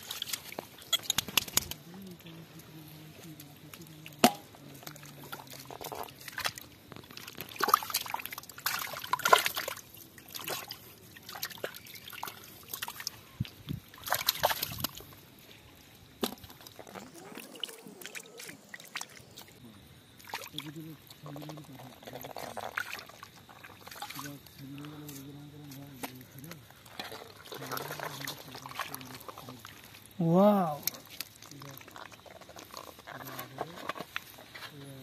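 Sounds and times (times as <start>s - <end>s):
hands splashing in muddy water: 3.8s - 15.1s.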